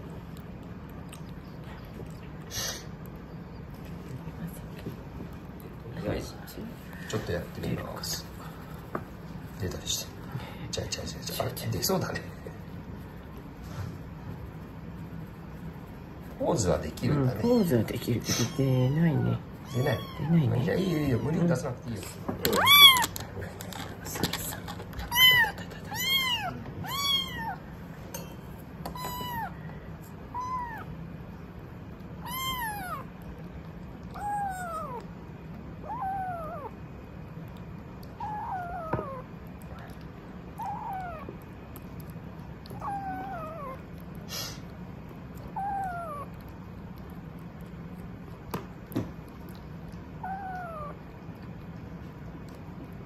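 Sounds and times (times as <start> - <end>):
steady low hum: 0.0 - 53.0
kittens mewing: 18.2 - 27.8, 28.9 - 31.0, 32.2 - 33.3, 34.0 - 35.2, 35.8 - 36.8, 38.0 - 41.9, 42.6 - 44.7, 45.4 - 46.5, 49.5 - 51.6.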